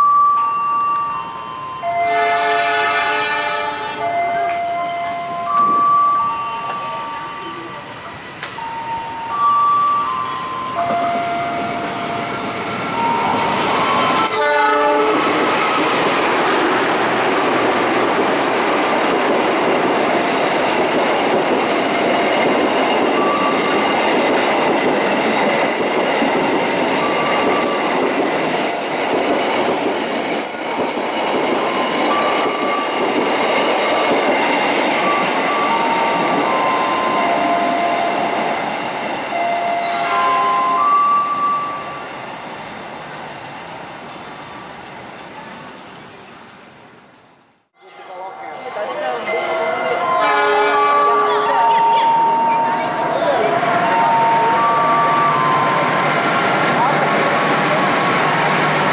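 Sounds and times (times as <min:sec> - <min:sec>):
train wheels rumbling on rail: 0:01.8 - 0:43.8
locomotive horn: 0:02.0 - 0:04.1, 0:14.2 - 0:15.3, 0:39.3 - 0:40.8, 0:49.5 - 0:51.7
high wheel squeal: 0:05.6 - 0:15.2
clickety-clack over rail joints: 0:15.0 - 0:37.6.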